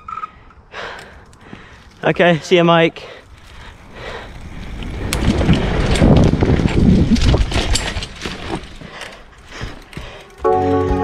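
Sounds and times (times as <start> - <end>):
tyres rumbling over dirt: 3.2 - 10.4
wind buffeting microphone: 3.3 - 9.0
bike knocks and rattles: 4.4 - 11.0.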